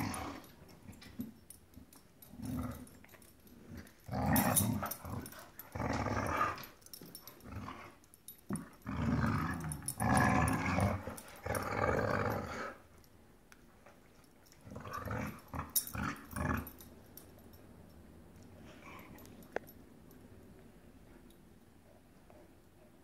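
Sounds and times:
dogs growling: 0.0 - 1.0, 2.2 - 12.9, 14.6 - 16.9.

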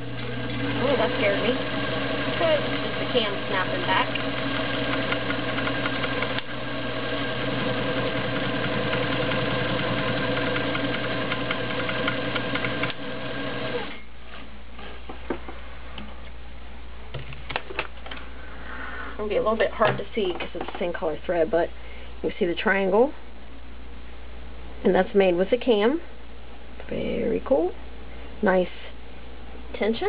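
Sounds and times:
sewing machine stitching: 0.2 - 14.0.

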